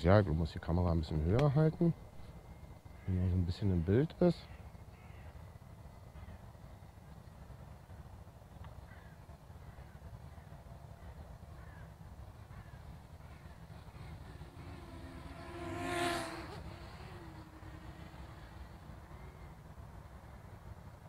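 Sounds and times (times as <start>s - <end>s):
low wind rumble: 0.0s - 21.0s
faint bird calls: 1.9s - 20.7s
drone propeller buzz: 11.7s - 20.4s.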